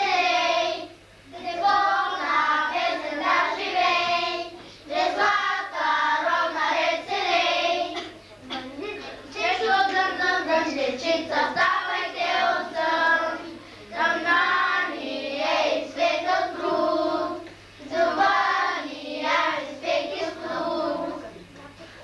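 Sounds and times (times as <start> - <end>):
children singing in unison: 0.0 - 8.1, 9.3 - 21.2.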